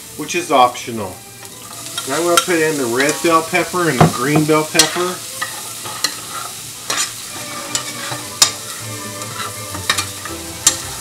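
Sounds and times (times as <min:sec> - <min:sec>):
vegetables sizzling in oil: 0:00.0 - 0:11.0
metal spoon scraping a pan: 0:01.6 - 0:03.5, 0:04.1 - 0:11.0.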